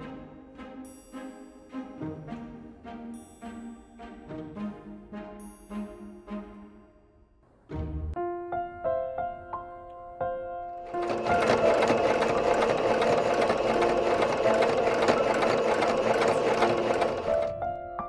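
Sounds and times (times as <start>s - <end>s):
soft piano music: 8.0s - 18.0s
sewing machine stitching: 10.8s - 17.5s.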